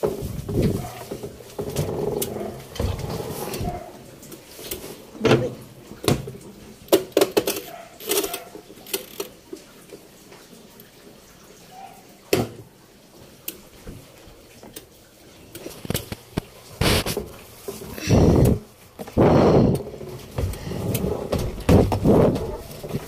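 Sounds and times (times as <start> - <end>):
knocks and clunks of handling: 0.0 - 9.3, 15.6 - 23.0.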